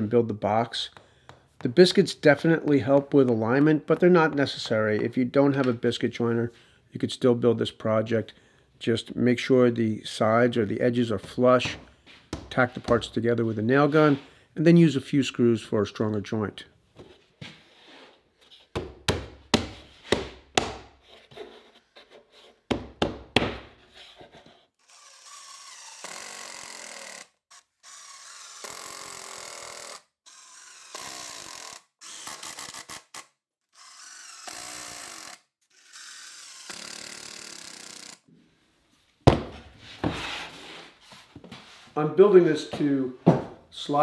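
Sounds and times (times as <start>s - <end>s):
impact driver driving screws: 24.8s - 38.2s
sharp knocks: 39.3s - 39.6s.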